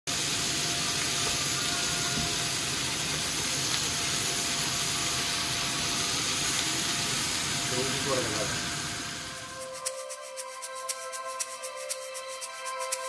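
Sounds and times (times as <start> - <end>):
liver sizzling in a pan: 0.1 - 10.3.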